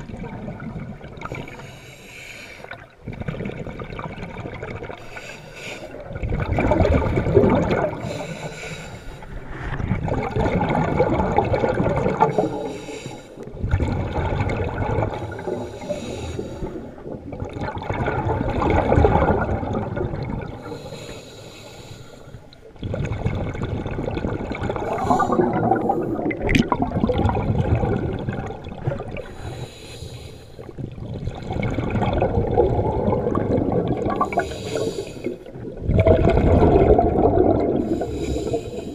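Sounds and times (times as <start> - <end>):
diver breathing through regulator: 1.2 - 2.9, 5.0 - 6.0, 7.9 - 10.0, 12.2 - 13.5, 15.1 - 17.0, 20.6 - 22.6, 24.8 - 26.4, 29.2 - 30.8, 34.1 - 35.6, 37.5 - 38.9.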